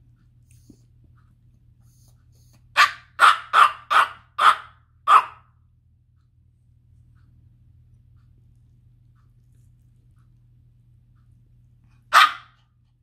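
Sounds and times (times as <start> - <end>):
small puppy barking: 2.7 - 5.5, 12.0 - 12.6.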